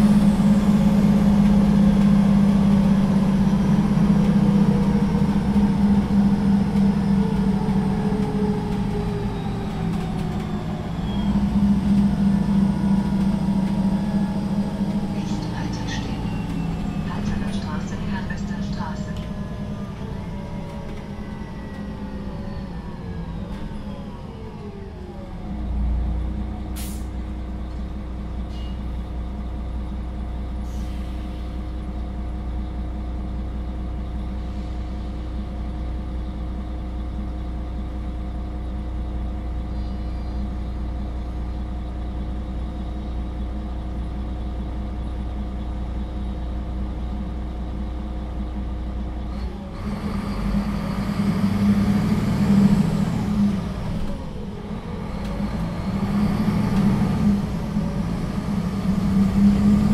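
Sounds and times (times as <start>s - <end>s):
bus engine: 0.0s - 59.9s
air brake hiss: 26.8s - 27.2s, 30.6s - 31.6s.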